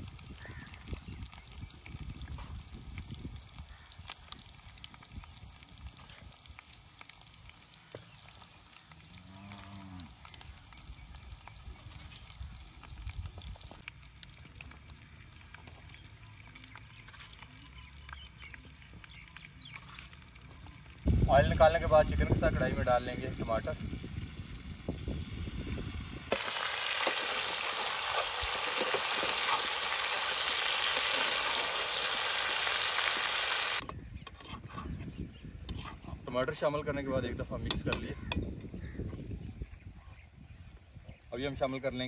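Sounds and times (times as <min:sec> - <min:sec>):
chicken frying sizzle: 0:00.0 - 0:33.8
cow mooing: 0:09.1 - 0:10.1.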